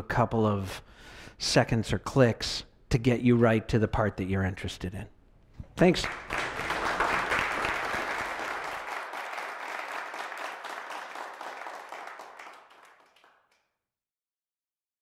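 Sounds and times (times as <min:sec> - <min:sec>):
audience applauding: 0:05.8 - 0:13.6.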